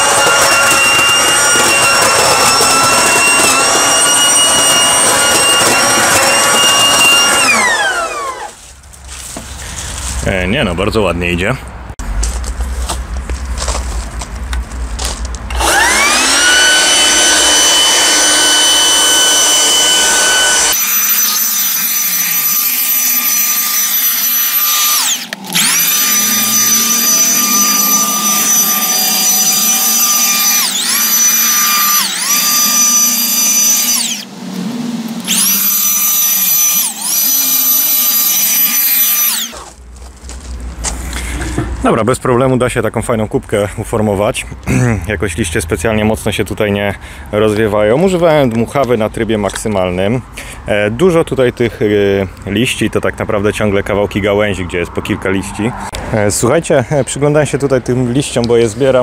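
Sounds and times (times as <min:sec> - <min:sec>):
leaf blower motor whining: 0:00.0 - 0:08.8, 0:15.5 - 0:39.8.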